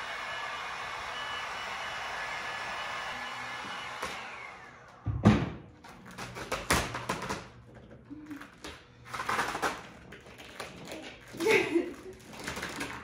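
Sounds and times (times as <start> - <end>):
heat gun fan winding down: 0.0 - 5.0.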